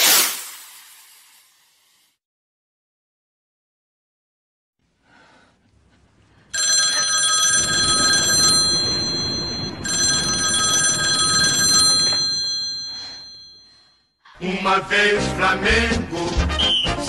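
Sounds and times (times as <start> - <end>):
telephone bell ringing: 6.5 - 14.0.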